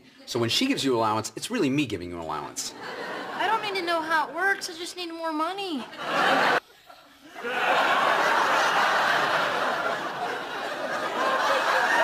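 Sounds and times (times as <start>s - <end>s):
studio audience laughing: 2.7s - 4.0s, 5.8s - 12.0s.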